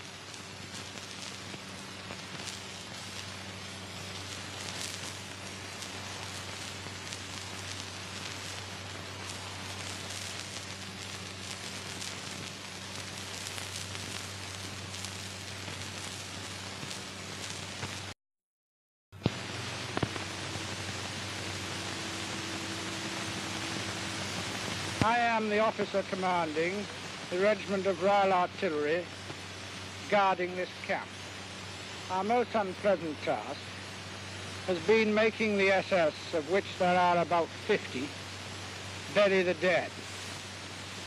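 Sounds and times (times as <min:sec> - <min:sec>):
film soundtrack hiss and crackle: 0:00.0 - 0:18.2, 0:19.2 - 0:41.0.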